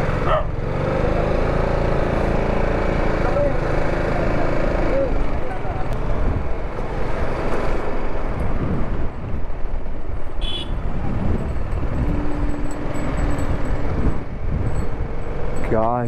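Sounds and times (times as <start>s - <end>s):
motorcycle engine running: 0.0s - 7.2s
wind rumbling on microphone: 5.8s - 16.0s.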